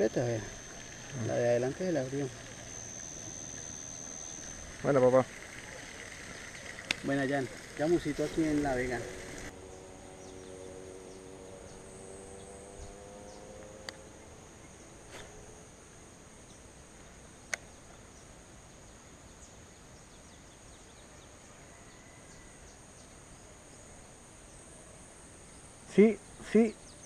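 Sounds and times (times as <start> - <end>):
high insect chorus: 0.0 - 27.0
sharp clicks: 4.3 - 9.5.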